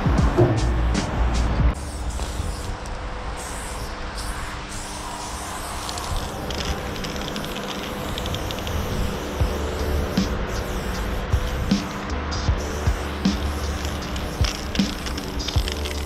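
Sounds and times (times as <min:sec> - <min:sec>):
steady low rumble: 0:00.0 - 0:16.0
spray-paint can hissing: 0:01.8 - 0:16.0.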